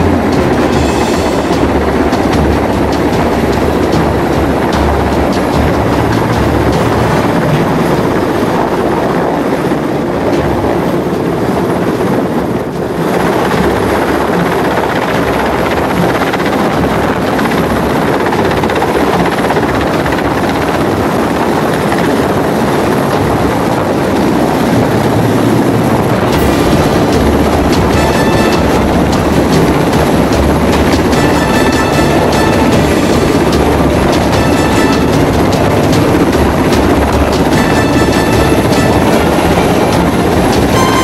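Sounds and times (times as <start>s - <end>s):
helicopter rotor beating: 0.0s - 41.0s.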